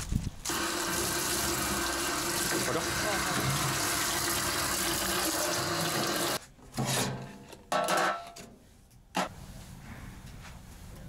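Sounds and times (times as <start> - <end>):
tap water running into sink: 0.5 - 6.4.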